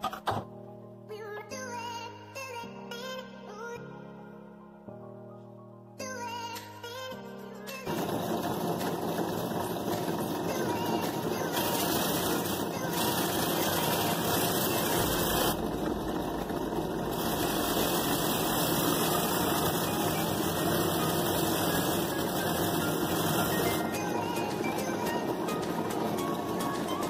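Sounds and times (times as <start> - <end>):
drill press motor humming: 7.9 - 27.0
wood sanding on drum: 8.7 - 23.8.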